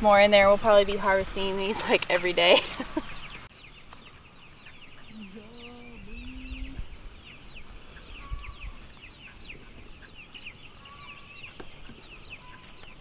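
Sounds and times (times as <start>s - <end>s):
chicks peeping: 3.0s - 13.0s
low rumbles: 5.0s - 10.0s.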